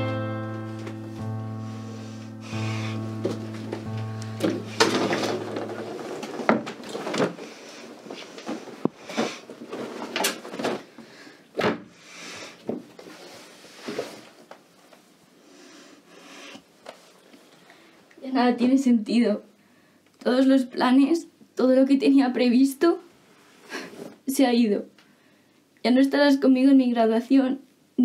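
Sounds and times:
background music with low tones: 0:00.0 - 0:06.8
clothes rustling: 0:02.7 - 0:11.0
knocks and bangs in wardrobe: 0:04.4 - 0:07.4, 0:11.6 - 0:11.9.

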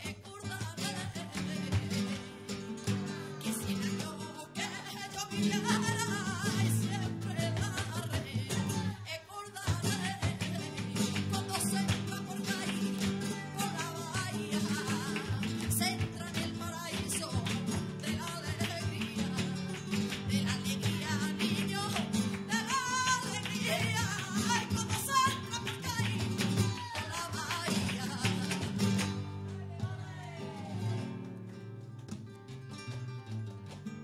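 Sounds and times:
acoustic guitar: 0:00.0 - 0:34.0
person singing flamenco: 0:00.0 - 0:34.0.

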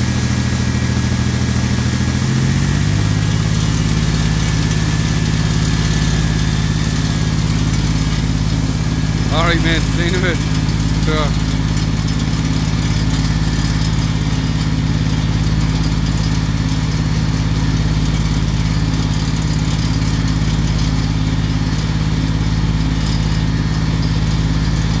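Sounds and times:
engine idling: 0:00.0 - 0:25.0.

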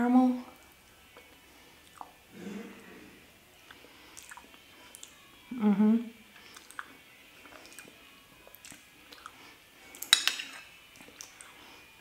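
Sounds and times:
person humming mm of enjoyment: 0:05.5 - 0:06.8
metal spoon clinking on dish: 0:10.0 - 0:10.8.

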